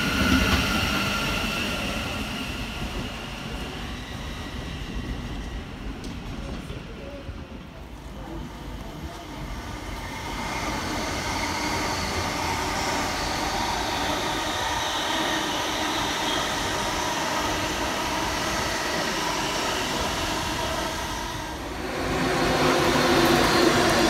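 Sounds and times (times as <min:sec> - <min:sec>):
faint train whine: 0:00.0 - 0:24.0
train rushing past: 0:08.4 - 0:24.0.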